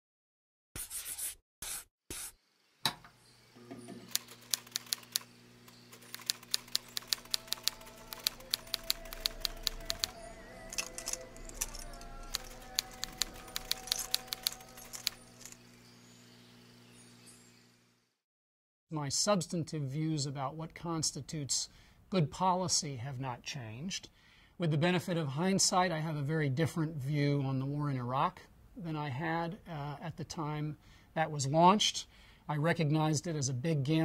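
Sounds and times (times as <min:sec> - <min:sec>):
typewriter keys clacking: 0:04.1 - 0:15.6
soft background music: 0:07.1 - 0:15.6.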